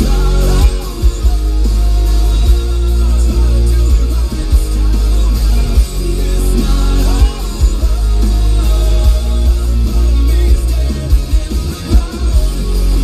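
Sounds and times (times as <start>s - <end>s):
heavy bass from subwoofer: 0.0s - 13.0s
song with vocals on car stereo: 0.0s - 13.0s.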